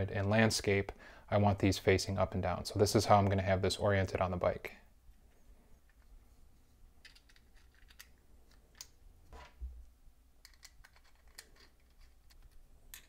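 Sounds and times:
plastic parts clicking together: 0:07.0 - 0:09.6, 0:10.4 - 0:13.0.

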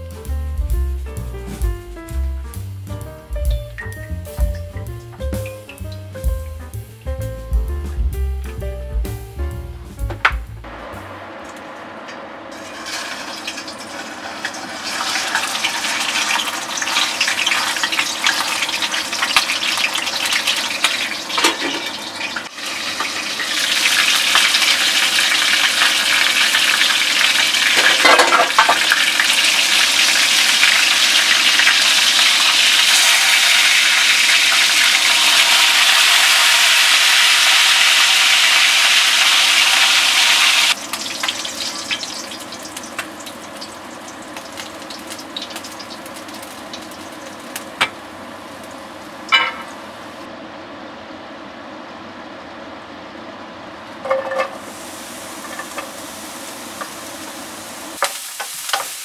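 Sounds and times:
fish sizzling in hot oil: 0:12.5 - 0:49.9, 0:54.5 - 0:59.0.

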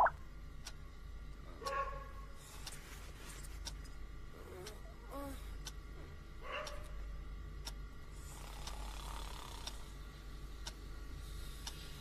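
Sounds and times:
clock ticking: 0:00.0 - 0:00.8, 0:07.6 - 0:07.8, 0:11.6 - 0:11.8
low steady hum: 0:00.0 - 0:12.0.

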